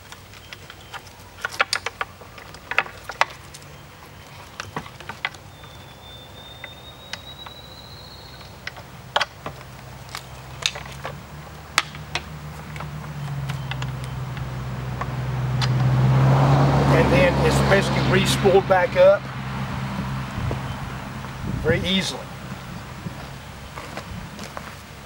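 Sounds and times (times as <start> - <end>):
clicks and knocks of handling: 0.0 - 5.4, 8.6 - 15.9
low vehicle engine hum: 0.0 - 25.0.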